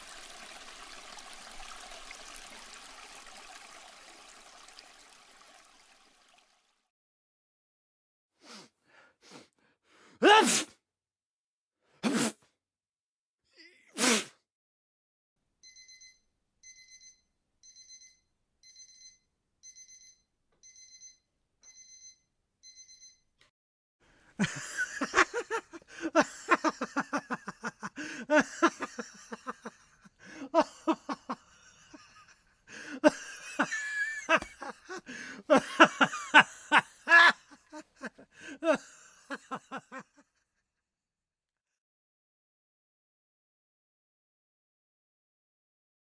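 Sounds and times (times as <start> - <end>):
alarm clock beeping: 15.6 - 23.3.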